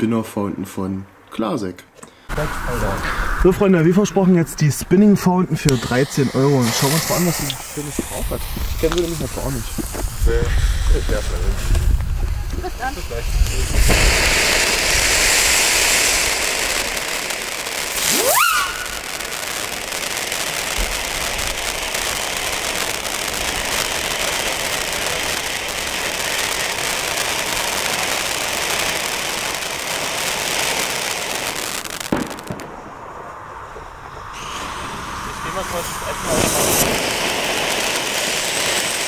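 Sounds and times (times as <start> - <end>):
firework fountain hissing: 2.3 - 39.0
short rising whistle: 18.0 - 19.2.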